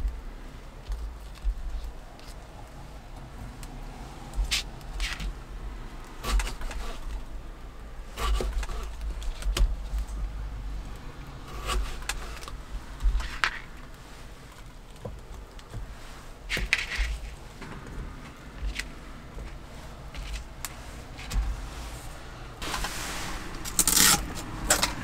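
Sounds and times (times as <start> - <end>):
steady low rumble: 11.9 - 25.0.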